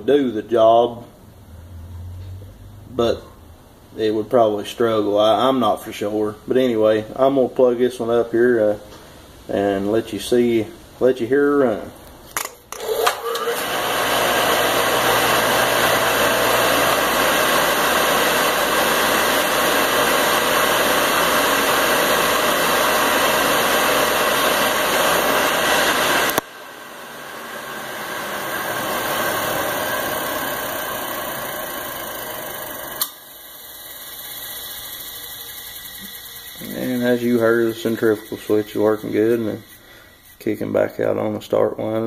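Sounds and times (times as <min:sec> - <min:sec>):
electric motor humming and whirring: 0:12.7 - 0:40.4
motor switch click: 0:33.0 - 0:33.2.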